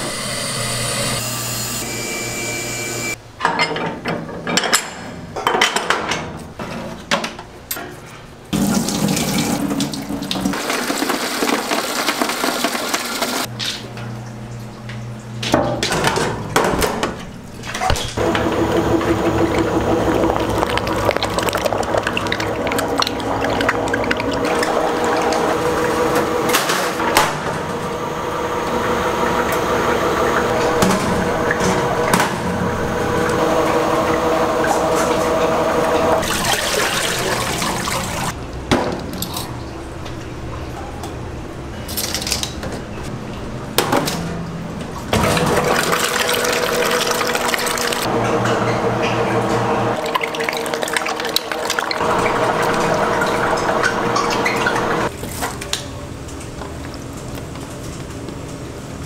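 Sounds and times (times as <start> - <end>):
machinery humming: 0.0 - 3.2, 17.5 - 38.3, 45.1 - 55.1.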